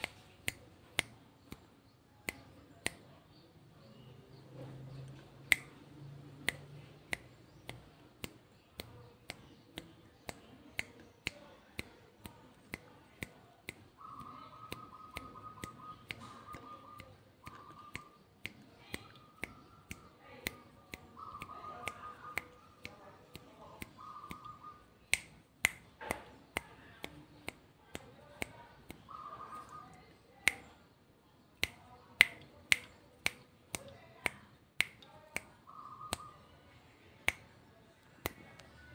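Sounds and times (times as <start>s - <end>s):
sharp dry clicks: 4.5s - 30.8s, 31.6s - 36.3s.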